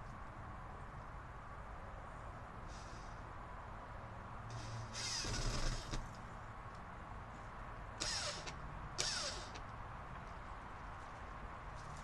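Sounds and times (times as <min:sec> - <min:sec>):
cordless drill whining: 0:04.9 - 0:06.0, 0:08.0 - 0:09.6.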